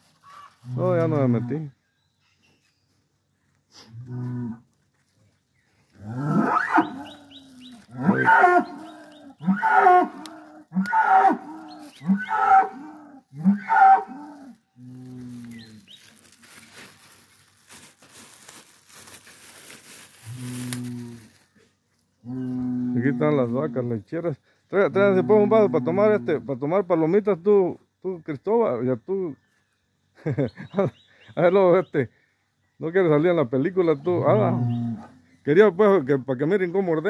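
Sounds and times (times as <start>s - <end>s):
cattle mooing: 6.0s - 15.8s, 34.2s - 35.2s.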